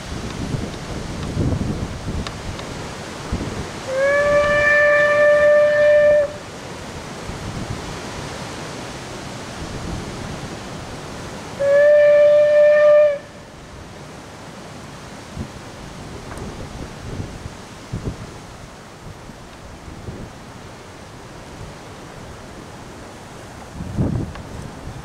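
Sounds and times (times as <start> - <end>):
wind noise on microphone: 0.0 - 8.4, 9.5 - 13.4, 15.2 - 20.5, 23.5 - 25.0
steam whistle toots: 3.9 - 6.4, 11.6 - 13.5.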